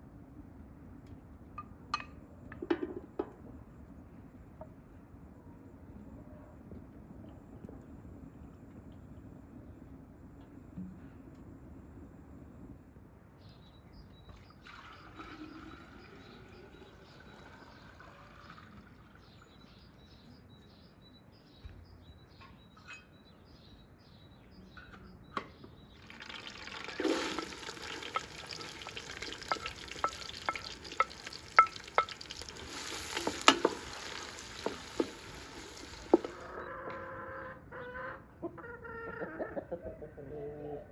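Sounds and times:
onions sizzling in hot oil: 26.0s - 36.5s.

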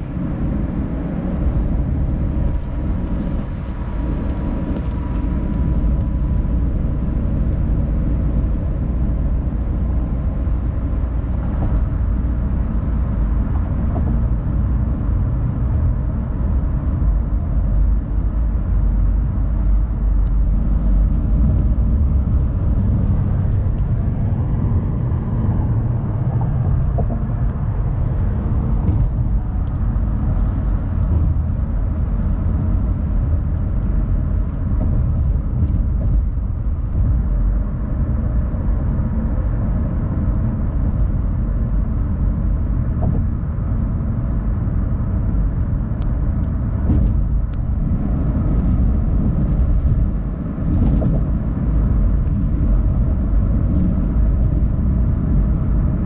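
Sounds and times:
car road rumble inside cabin: 0.0s - 56.0s.

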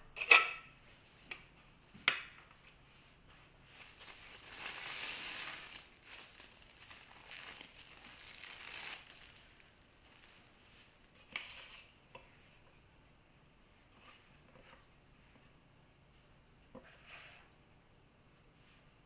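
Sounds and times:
plastic cling film crinkling: 3.7s - 11.6s.

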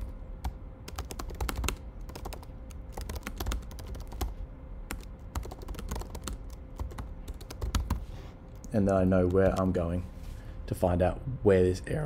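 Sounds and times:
typing on computer keyboard: 0.9s - 8.0s.

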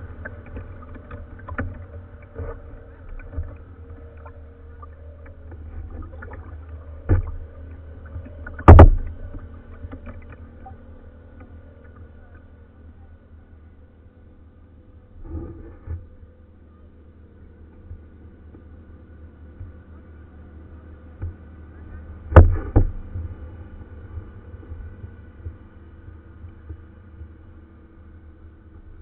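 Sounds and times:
light taps on hull: 0.0s - 12.5s, 17.6s - 18.8s, 21.1s - 23.4s, 24.2s - 27.4s
water rumbling against kayak hull: 0.0s - 12.9s, 21.2s - 27.4s.

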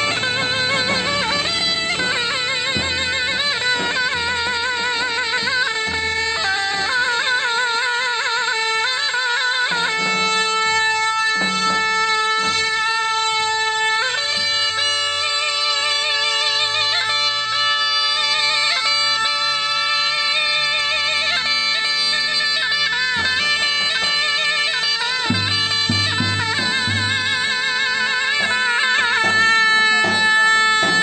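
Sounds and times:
steady drone note: 0.0s - 7.1s
zurna playing folk melody: 0.0s - 31.0s.

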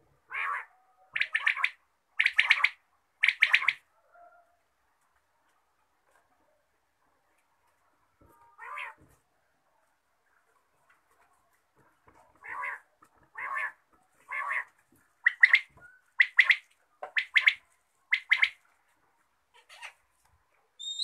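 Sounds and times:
bird calling harshly: 13.4s - 18.6s, 20.8s - 21.0s.

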